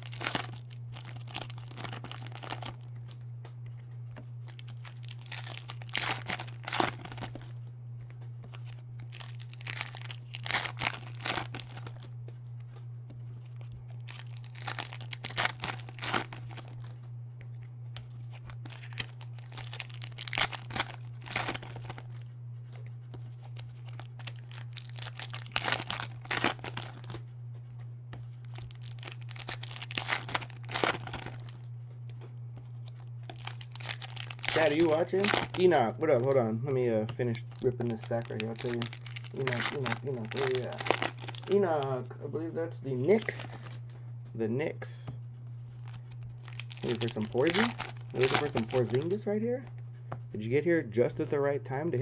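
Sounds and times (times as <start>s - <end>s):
foil wrappers tearing and crinkling: 0.0s - 3.2s, 4.5s - 7.6s, 8.5s - 12.1s, 13.4s - 17.0s, 18.2s - 22.2s, 23.4s - 27.2s, 28.4s - 31.6s, 32.8s - 36.4s, 37.1s - 41.9s, 43.0s - 43.9s, 45.8s - 49.7s
steady low hum: 0.0s - 52.0s.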